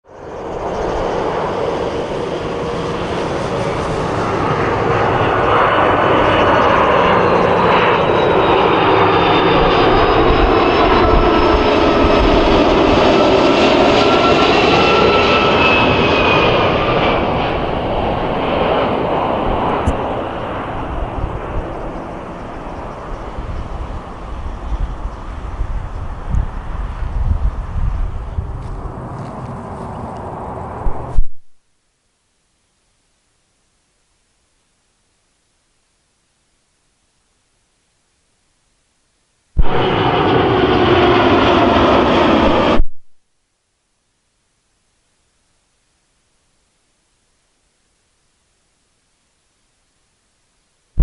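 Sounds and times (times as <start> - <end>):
jet airliner passing overhead: 0.1 - 31.4, 39.6 - 43.0.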